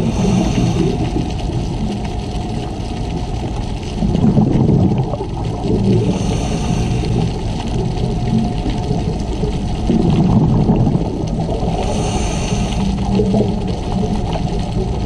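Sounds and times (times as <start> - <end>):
regulator hissing inhale: 0.0 - 1.3, 5.9 - 7.6, 11.7 - 13.1
exhaled bubbles rumbling underwater: 0.0 - 15.0.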